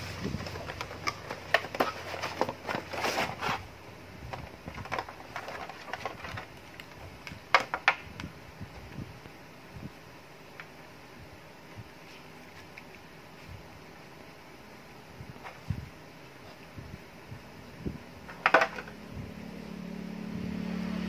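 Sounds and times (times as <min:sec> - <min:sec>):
cardboard packaging rustling: 0:00.0 - 0:03.7, 0:04.4 - 0:07.1.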